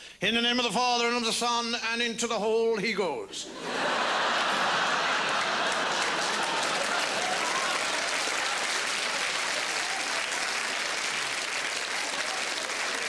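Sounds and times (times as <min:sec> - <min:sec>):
audience clapping: 0:04.4 - 0:13.0.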